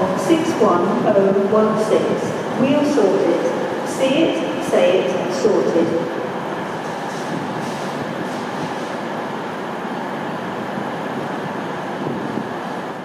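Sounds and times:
train rumbling on track: 0.0 - 13.0.

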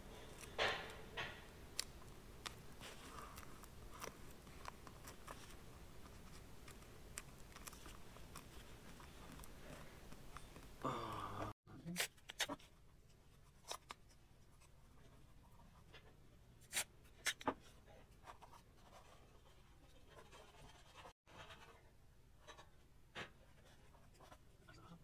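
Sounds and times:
paper rustling and crinkling: 2.0 - 10.7.

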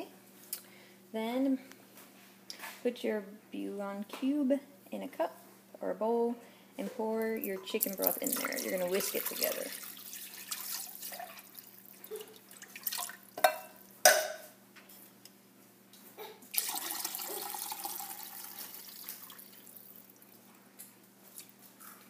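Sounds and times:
broth pouring into glass cup: 16.6 - 19.8.

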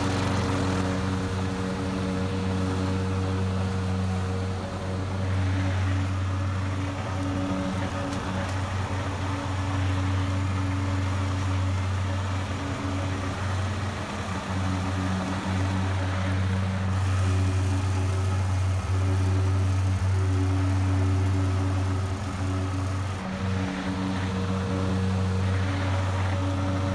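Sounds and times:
lawn mower engine running: 0.0 - 26.9.

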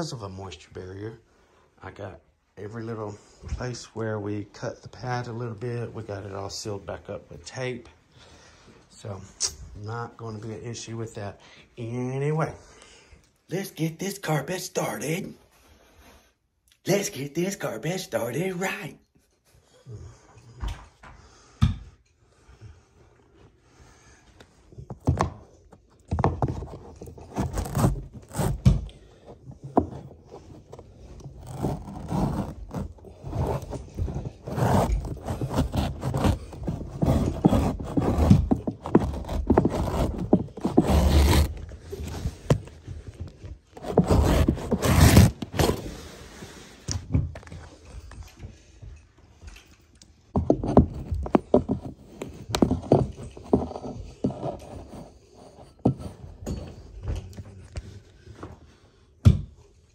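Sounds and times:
stair tool tucking carpet: 26.1 - 46.8
carpet trimmer scraping: 26.4 - 42.8, 43.7 - 46.6.

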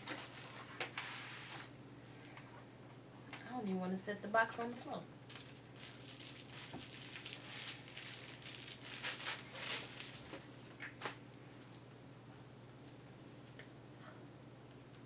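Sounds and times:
bubble wrap crinkling: 0.0 - 1.7, 5.3 - 11.6.

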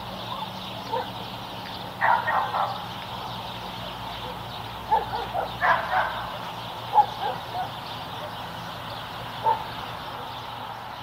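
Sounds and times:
dog barking: 0.9 - 1.2, 2.0 - 2.8, 4.2 - 6.3, 6.9 - 7.8, 9.4 - 9.7.

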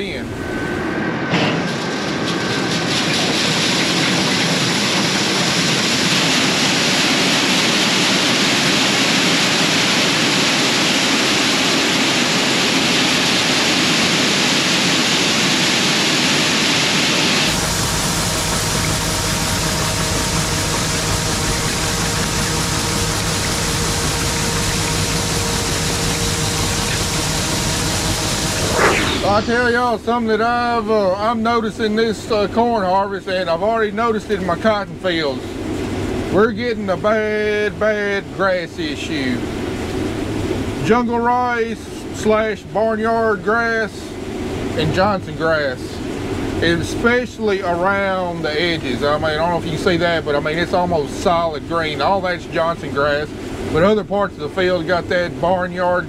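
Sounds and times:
machine engine running: 0.0 - 40.8
deep rumble with steady hum: 0.0 - 40.9
grain pouring with rushing hiss: 3.2 - 35.4.

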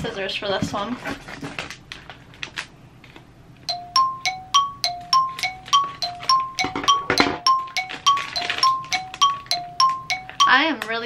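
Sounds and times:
plastic packaging rustling: 0.8 - 3.3
two-note ringing melody: 3.7 - 11.0.

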